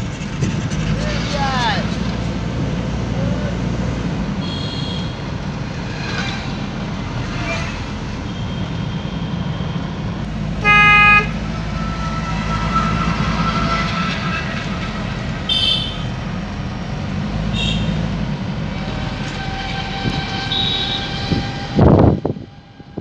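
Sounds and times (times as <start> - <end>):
engine and road noise inside vehicle: 0.0 - 23.0
vehicle horn honk: 4.4 - 5.2, 10.6 - 14.4, 15.5 - 16.1, 17.5 - 18.0, 19.9 - 21.5
higher-pitched horn toots: 10.6 - 16.2, 18.8 - 22.0.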